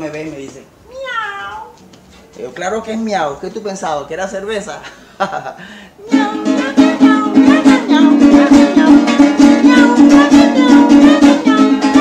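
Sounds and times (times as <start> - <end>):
acoustic guitar strumming: 6.0 - 12.0.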